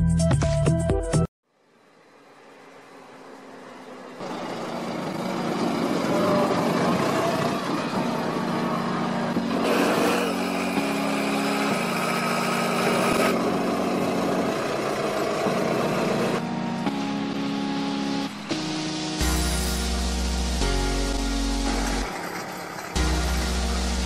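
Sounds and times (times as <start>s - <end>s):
background music: 0.0s - 1.3s, 5.0s - 24.0s
heavy railway machinery running: 1.7s - 24.0s.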